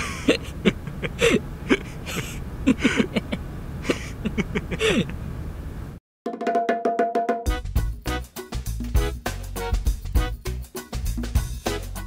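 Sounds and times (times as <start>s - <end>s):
breathy puffs and hisses of air: 1.1s - 3.2s, 3.8s - 5.1s.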